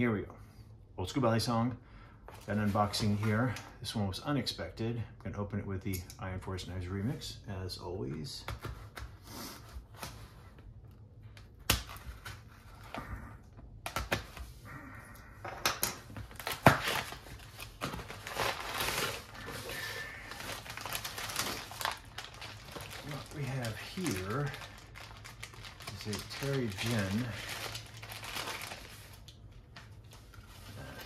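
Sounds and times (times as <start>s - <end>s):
paper and plastic rustling: 16.0s - 31.0s.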